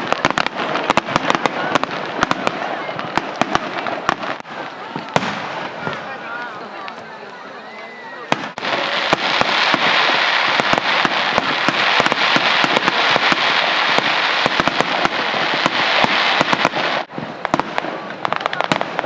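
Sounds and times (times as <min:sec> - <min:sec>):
fireworks bangs: 0:00.0 - 0:19.0
fireworks popping and crackling: 0:00.0 - 0:19.0.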